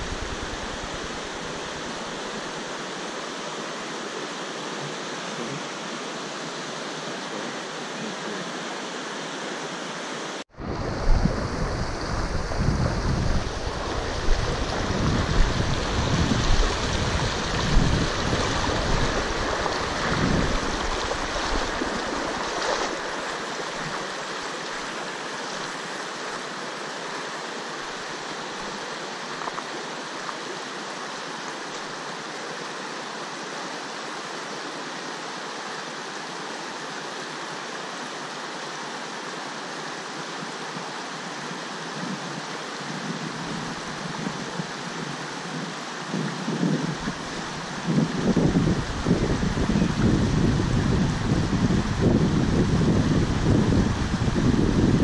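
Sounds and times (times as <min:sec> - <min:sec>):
river flowing: 0:00.0 - 0:55.0
wind buffeting microphone: 0:10.5 - 0:23.2, 0:42.9 - 0:55.0.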